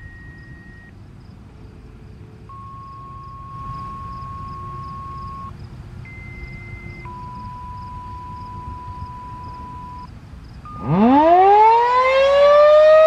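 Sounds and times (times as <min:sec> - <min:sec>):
radio paging tones: 0:00.0 - 0:00.9, 0:02.5 - 0:05.5, 0:06.1 - 0:10.1, 0:10.7 - 0:10.9
low background rumble: 0:00.0 - 0:11.3.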